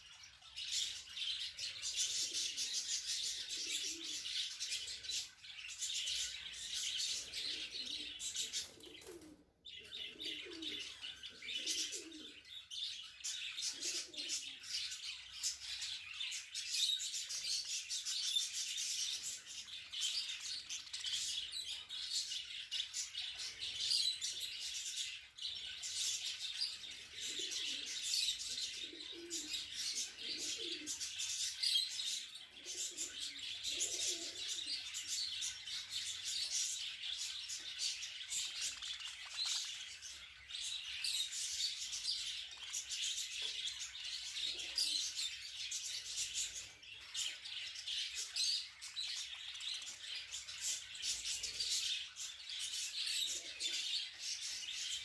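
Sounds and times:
budgerigars chirping: 35.6s - 42.9s.

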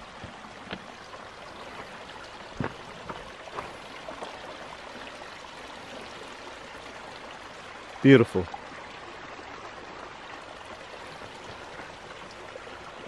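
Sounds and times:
creek trickling over rocks: 0.0s - 13.0s.

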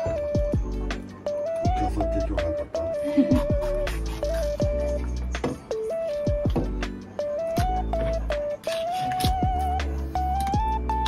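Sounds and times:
electronic melody: 0.0s - 11.0s
deep kick drums: 0.2s - 0.9s, 3.3s - 4.0s, 6.3s - 6.9s, 7.6s - 8.4s.

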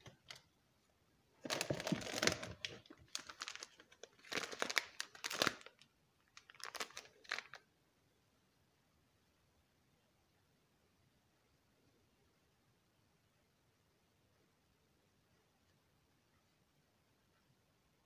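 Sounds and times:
foil coffee bag crinkling: 1.4s - 7.6s.

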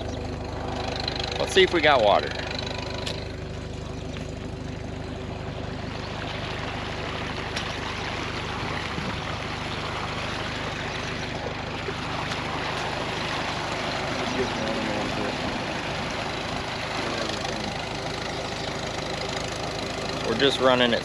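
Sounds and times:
tractor engine humming: 0.0s - 21.0s
water gushing from pipe: 5.8s - 18.2s.

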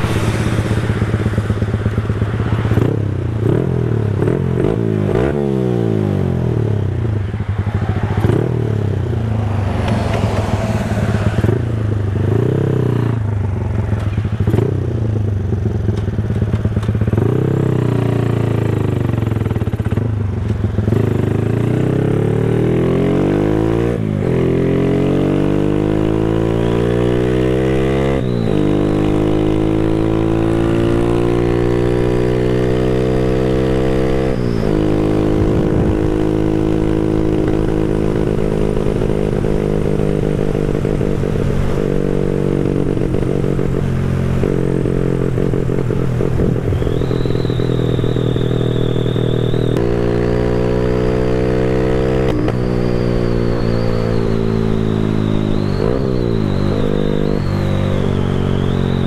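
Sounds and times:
motorcycle engine at speed: 0.0s - 59.0s
wind rumble on microphone: 34.6s - 49.9s.

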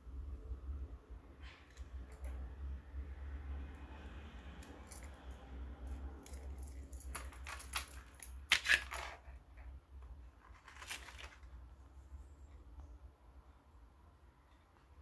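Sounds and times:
knife drawn from plastic sheath: 8.5s - 9.4s.

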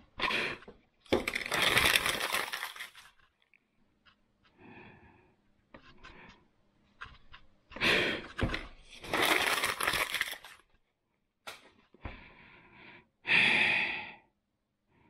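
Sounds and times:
paper crumpling: 1.1s - 3.4s, 8.9s - 10.8s.

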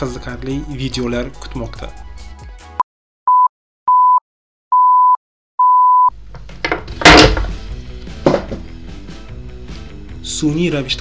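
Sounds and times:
electronic timer beeps: 3.3s - 6.1s
thump on a desk: 8.2s - 8.7s.

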